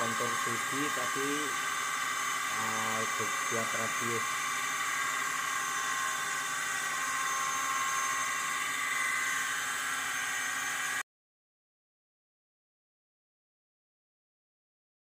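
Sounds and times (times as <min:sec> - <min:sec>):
metal cutting noise: 0:00.0 - 0:11.0
router spindle whining: 0:00.0 - 0:11.0.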